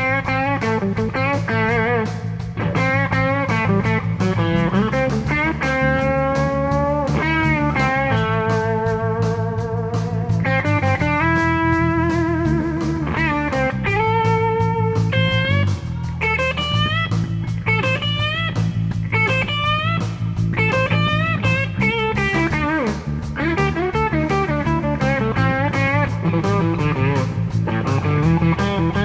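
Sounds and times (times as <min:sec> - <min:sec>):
drum kit: 0:00.0 - 0:29.0
electric bass: 0:00.0 - 0:29.0
electric guitar solo: 0:00.0 - 0:29.0.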